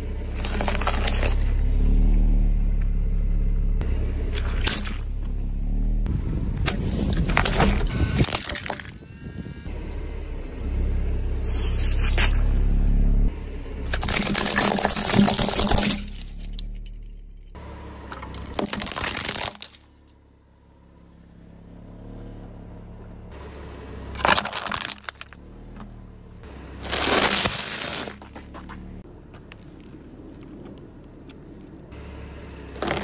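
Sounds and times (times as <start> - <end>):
tyre crushing plastic toys: 0.3 - 1.5, 6.7 - 9.0, 13.9 - 17.1, 18.2 - 19.9, 24.2 - 25.4, 26.8 - 28.8, 32.8 - 33.0.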